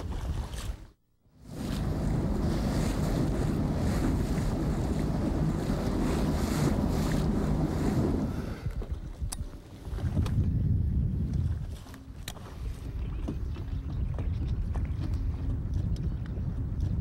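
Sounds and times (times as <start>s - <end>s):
water slapping: 0.0s - 9.0s
wind buffeting the microphone: 1.4s - 17.0s.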